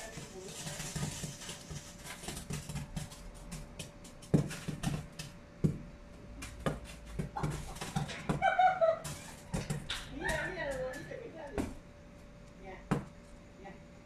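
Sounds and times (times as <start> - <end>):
fireworks pops and crackles: 0.0 - 5.3, 6.4 - 11.6.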